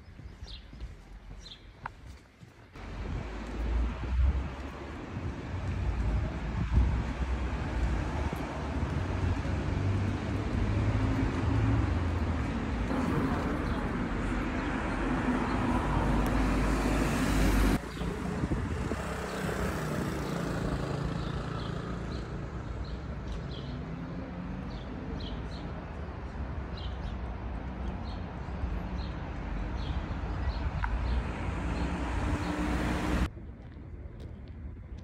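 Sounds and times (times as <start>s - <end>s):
steady traffic noise: 0.0s - 35.0s
cars passing: 2.8s - 33.3s.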